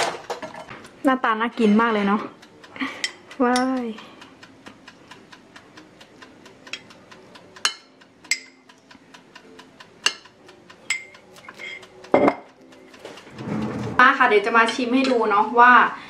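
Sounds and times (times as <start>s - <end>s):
metal spoon clinking glass jar: 10.9s - 12.5s.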